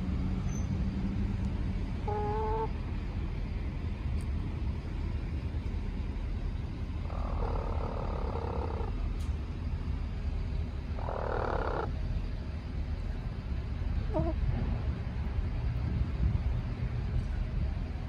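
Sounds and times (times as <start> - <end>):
steady low rumble: 0.0 - 18.0
hen purring trills: 2.0 - 2.8, 7.0 - 9.0, 10.9 - 12.0, 14.1 - 14.4.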